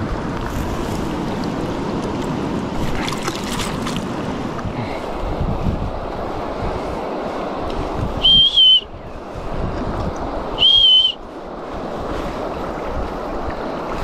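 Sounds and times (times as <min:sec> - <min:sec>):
river water rushing: 0:00.0 - 0:14.0
wind buffeting microphone: 0:00.0 - 0:14.0.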